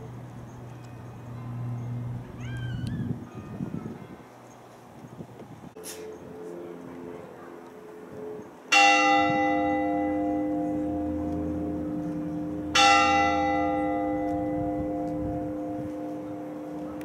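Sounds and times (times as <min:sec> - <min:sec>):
large church bell ringing: 0:00.0 - 0:02.4, 0:06.0 - 0:17.0.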